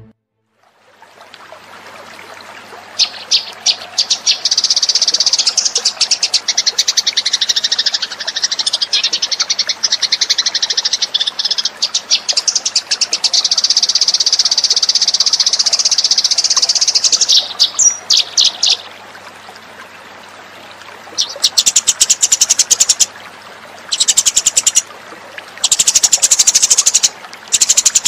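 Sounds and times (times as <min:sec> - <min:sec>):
sparrows chirping: 0:03.0 - 0:18.9, 0:21.2 - 0:23.1, 0:23.9 - 0:24.8, 0:25.6 - 0:28.0.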